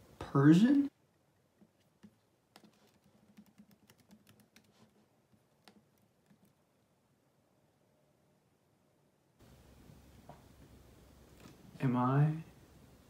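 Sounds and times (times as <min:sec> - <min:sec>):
laptop keyboard typing: 0:01.2 - 0:06.6.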